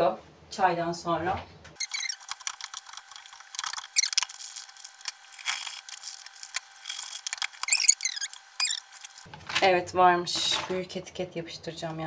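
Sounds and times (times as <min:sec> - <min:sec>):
plastic squeaking on plastic: 0:01.7 - 0:09.3.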